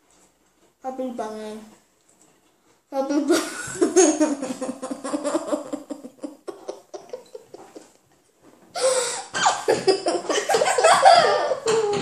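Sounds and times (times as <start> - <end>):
children laughing and giggling: 3.2 - 8.0, 8.8 - 12.0.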